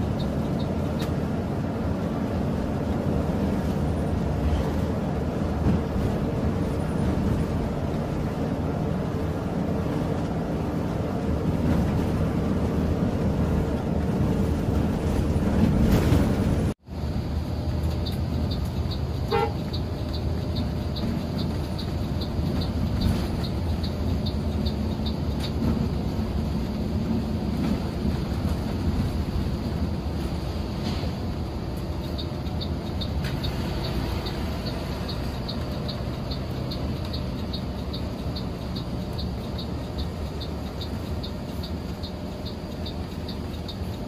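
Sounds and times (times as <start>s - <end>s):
bus engine: 0.0s - 44.0s
road noise: 0.0s - 44.0s
light ticking: 17.7s - 27.6s, 31.4s - 44.0s.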